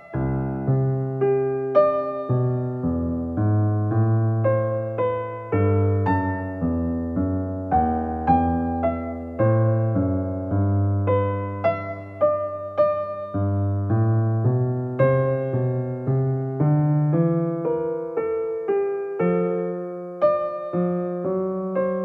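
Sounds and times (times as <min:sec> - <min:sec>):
gentle piano music: 0:00.0 - 0:22.0.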